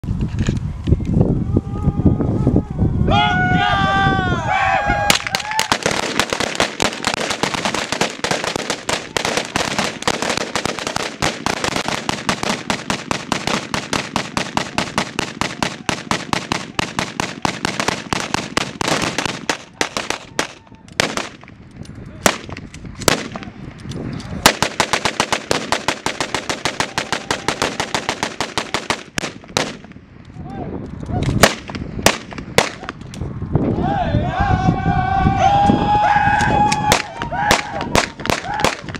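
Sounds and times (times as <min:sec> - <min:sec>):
rifle gun salute shots: 0:05.1 - 0:21.5, 0:31.2 - 0:33.0.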